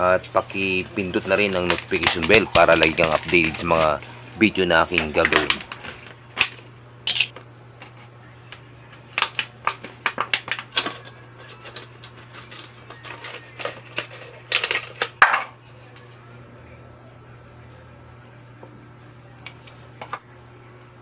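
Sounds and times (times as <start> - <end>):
plastic bottles crackling: 0.0 - 6.5
steady low hum: 0.0 - 21.0.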